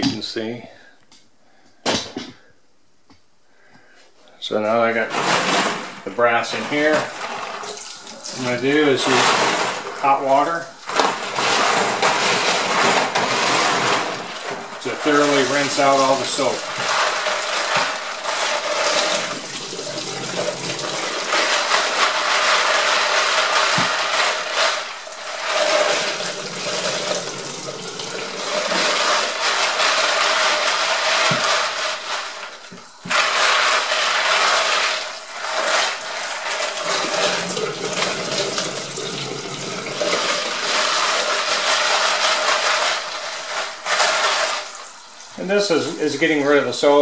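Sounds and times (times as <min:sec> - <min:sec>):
brass cases clinking: 0:11.9 - 0:31.8, 0:36.7 - 0:44.4.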